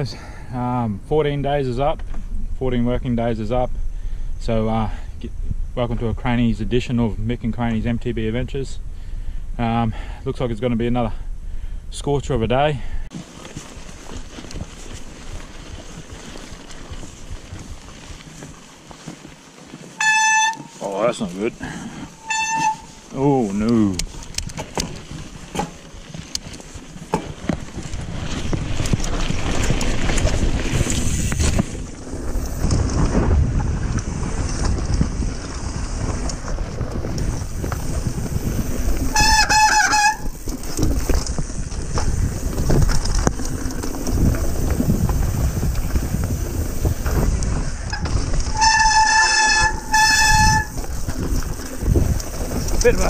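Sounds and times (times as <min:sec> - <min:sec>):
bike trail rattle: 0:00.0 - 0:53.0
wind: 0:00.0 - 0:53.0
brakes squealing: 0:19.9 - 0:24.2, 0:35.5 - 0:53.0.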